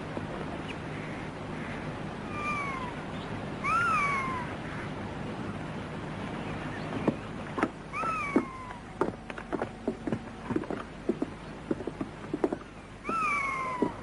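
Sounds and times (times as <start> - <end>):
cat meowing: 2.2 - 3.0, 3.6 - 4.5, 7.9 - 8.8, 13.0 - 14.0.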